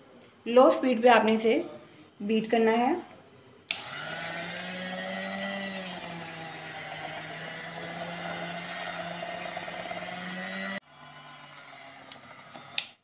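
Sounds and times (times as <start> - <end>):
electric hand mixer running: 3.8 - 13.0.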